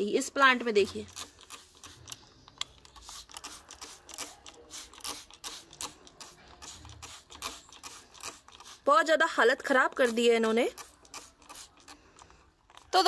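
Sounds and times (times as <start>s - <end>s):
spray bottle trigger clicks: 0.7s - 8.8s, 10.0s - 12.0s
short spray spritzes: 3.0s - 8.9s, 10.0s - 11.9s.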